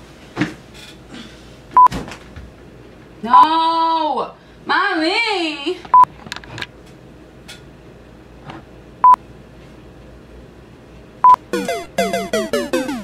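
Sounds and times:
short electronic beeps: 11.2s - 13.0s
descending electronic tones: 11.3s - 13.0s.

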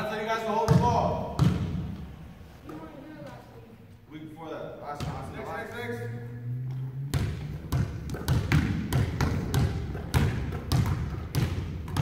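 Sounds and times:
basketballs bouncing on wooden floor: 0.6s - 2.1s, 6.7s - 12.0s.

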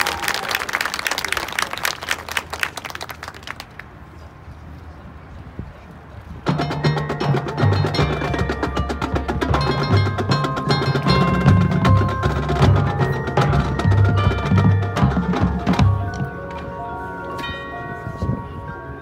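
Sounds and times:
marching band percussion: 6.4s - 16.8s.

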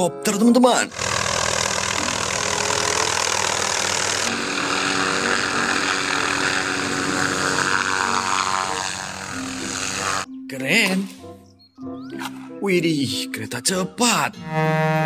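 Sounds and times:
helicopter hovering: 0.8s - 10.3s.

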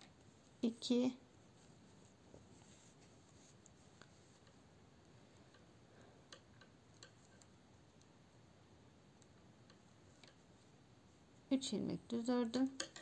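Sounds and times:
knitting needles clicking: 6.3s - 8.2s, 9.2s - 10.5s, 12.3s - 13.0s.

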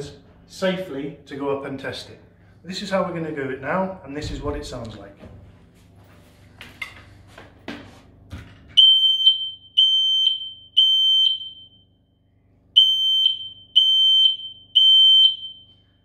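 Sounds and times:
smoke alarm beeping: 8.8s - 12.1s, 12.8s - 16.0s.

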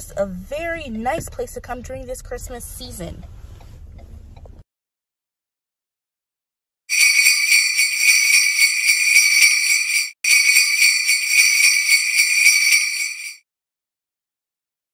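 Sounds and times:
jingle bells shaken: 6.9s - 13.4s.

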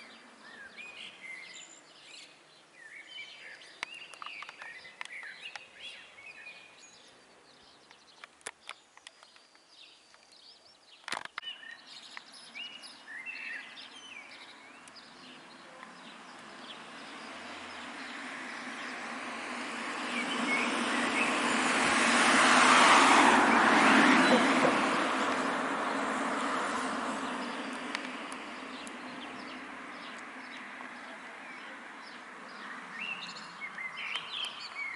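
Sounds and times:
small birds chirping: 0.0s - 34.9s
sharp clicks: 3.8s - 5.7s, 27.7s - 29.0s
road vehicle passing: 11.8s - 34.9s.

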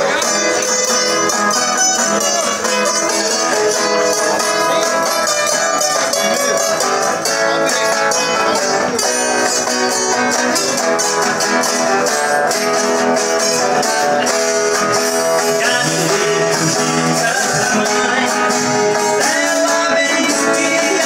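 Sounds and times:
viola and acoustic guitar playing: 0.0s - 21.0s
person singing: 13.4s - 21.0s.

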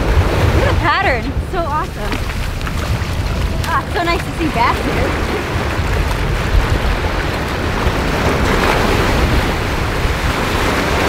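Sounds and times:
surf waves breaking on sand: 0.0s - 11.0s
wind buffeting microphone: 0.0s - 11.0s.

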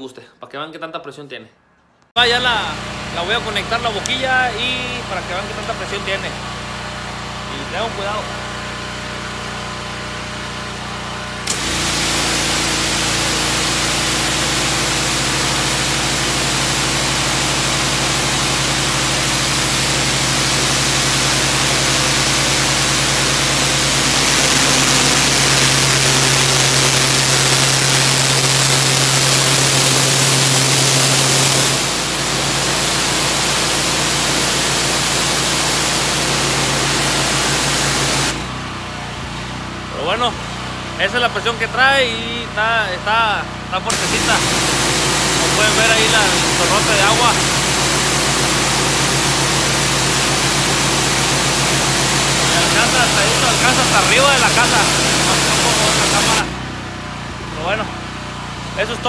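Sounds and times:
machine hum under load: 2.2s - 59.0s
pressure washer spray hiss: 11.5s - 38.4s, 43.9s - 56.6s.

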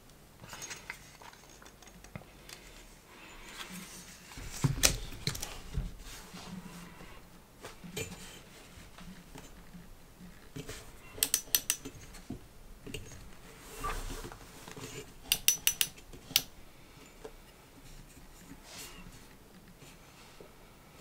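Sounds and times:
metal hinge clicks: 11.2s - 12.0s, 15.3s - 16.5s.

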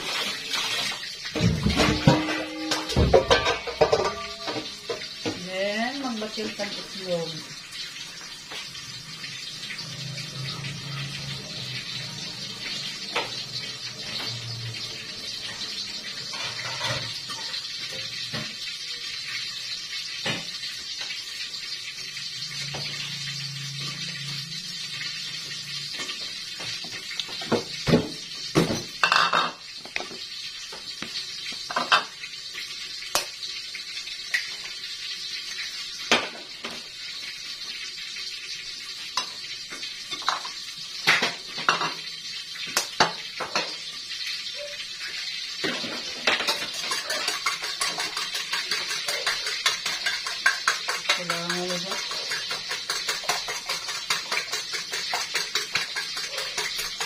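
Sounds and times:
dishes and utensils clattering: 0.0s - 5.9s, 10.6s - 19.3s, 22.5s - 30.2s, 31.6s - 32.2s, 36.0s - 36.9s, 39.2s - 42.1s, 42.7s - 43.9s, 44.5s - 57.0s.

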